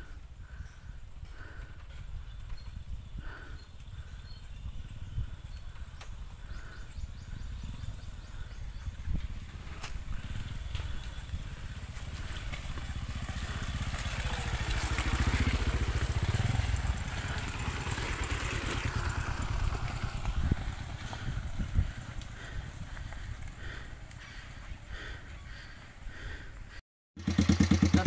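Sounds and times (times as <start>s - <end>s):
dirt bike engine passing: 7.2s - 26.0s, 27.2s - 28.0s.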